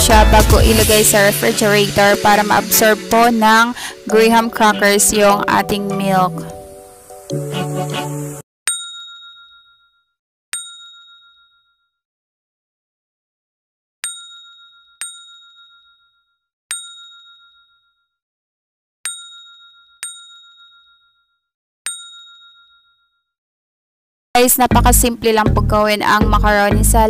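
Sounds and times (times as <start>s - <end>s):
high bell-like chime: 8.7s - 12.0s, 14.0s - 18.2s, 19.1s - 23.4s.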